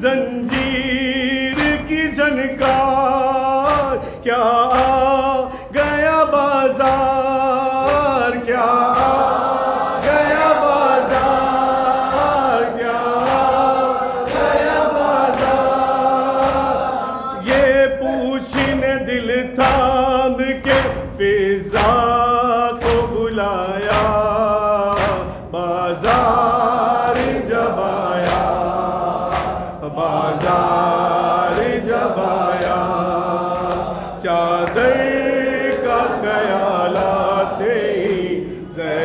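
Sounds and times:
man singing into a microphone: 0:00.0 - 0:09.2, 0:17.3 - 0:28.6, 0:29.8 - 0:39.0
group singing in chorus: 0:00.0 - 0:39.0
rhythmic chest-beating slaps: 0:00.0 - 0:39.0.

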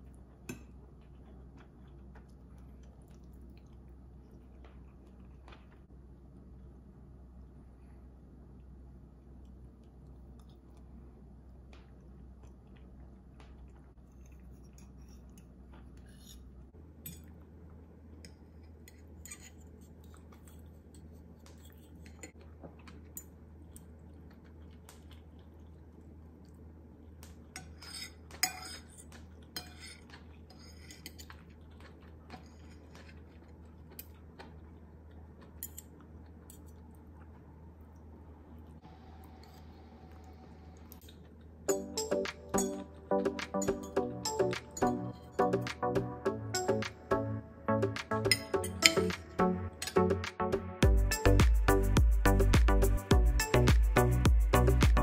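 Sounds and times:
faint low hum: 0:00.0 - 0:55.0
fork and spoon clinking on plate: 0:27.6 - 0:31.4.

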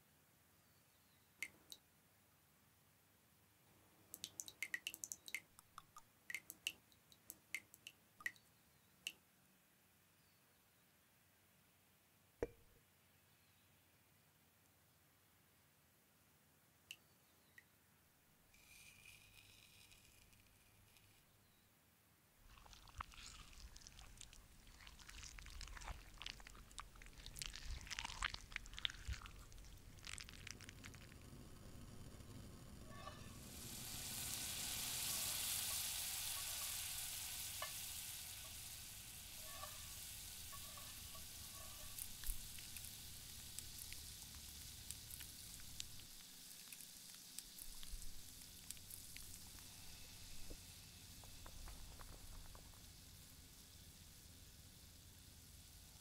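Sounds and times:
oil dripping into glass: 0:04.2 - 0:08.4, 0:22.5 - 0:31.2
wet squelching of food: 0:22.5 - 0:31.1.

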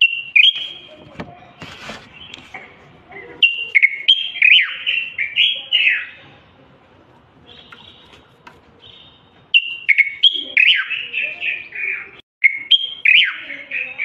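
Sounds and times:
bird whistled song: 0:00.0 - 0:01.0, 0:03.4 - 0:06.2, 0:08.8 - 0:14.0.

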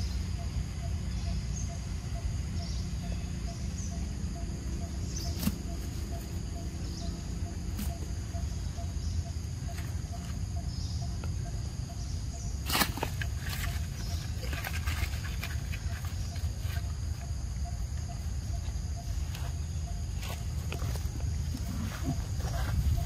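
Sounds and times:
crackling rustle: 0:12.6 - 0:17.4.

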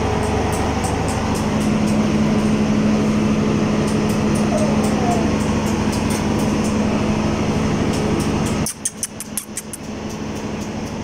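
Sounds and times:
machine hum with low drone: 0:00.0 - 0:11.0
light high ticks: 0:07.9 - 0:11.0.

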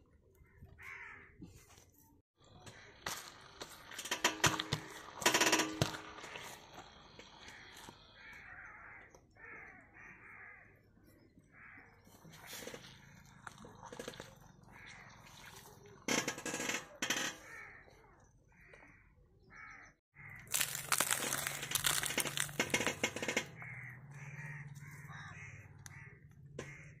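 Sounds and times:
crows cawing: 0:00.4 - 0:01.4, 0:02.5 - 0:10.9, 0:11.5 - 0:12.6, 0:14.6 - 0:15.4, 0:17.2 - 0:27.0
tyre crushing eggs crackling: 0:02.8 - 0:08.0, 0:20.3 - 0:23.8.

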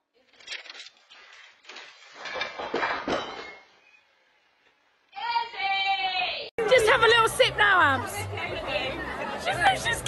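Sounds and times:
knocks and clinking clatter: 0:00.3 - 0:03.8.

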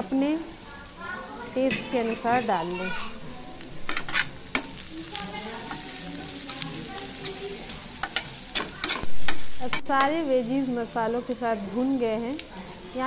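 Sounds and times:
vegetables sizzling in oil: 0:00.0 - 0:13.0
spatula scraping a pan: 0:03.8 - 0:10.0.

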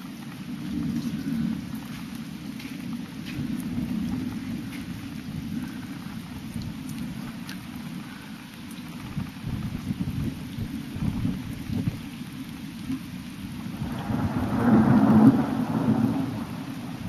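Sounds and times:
rain hissing: 0:00.0 - 0:17.0
thunder rumbling: 0:00.0 - 0:17.0.

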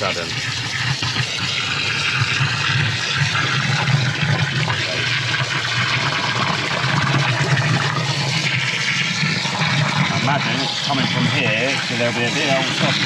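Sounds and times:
hose water splashing into drain: 0:00.0 - 0:13.0.

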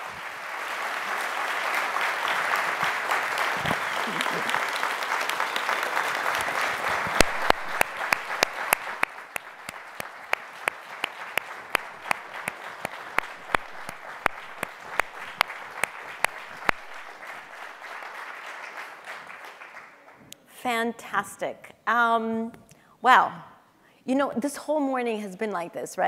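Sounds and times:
audience applauding: 0:00.0 - 0:20.3
loud single claps close by: 0:06.3 - 0:17.4.

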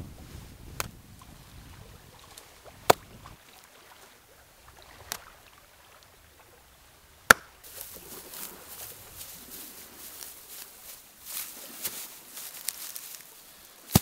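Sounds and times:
hand slapping wet clay: 0:07.3 - 0:07.6
dry grass rustling: 0:07.3 - 0:14.0.

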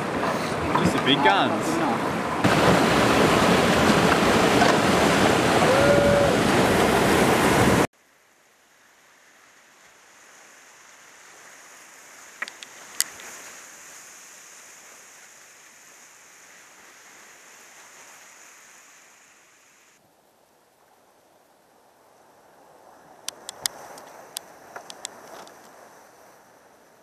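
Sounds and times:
river whitewater roaring: 0:00.0 - 0:07.9
muffled rushing water hiss: 0:00.0 - 0:27.0.

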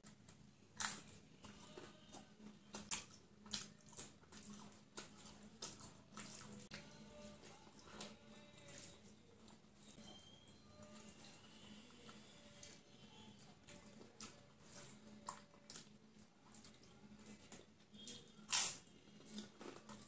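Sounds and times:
wet chewing: 0:00.8 - 0:09.7
crunching crisp food: 0:13.2 - 0:20.0.

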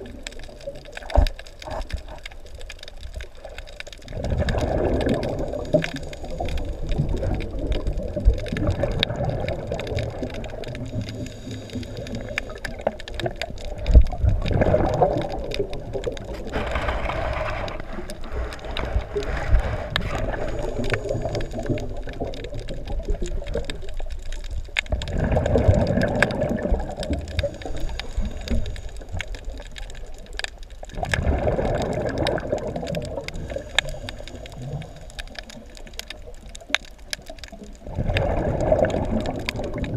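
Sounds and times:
faint sharp clicks: 0:00.0 - 0:39.9
underwater bubbles gurgling: 0:00.0 - 0:39.9.

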